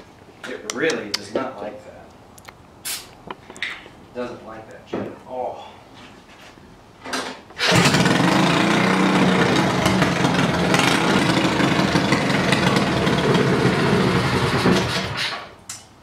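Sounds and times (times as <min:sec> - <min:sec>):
small engine idling: 0:07.6 - 0:15.3.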